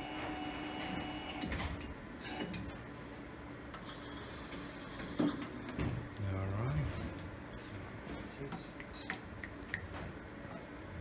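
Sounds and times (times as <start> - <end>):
printer humming and whining: 0.0 - 8.5.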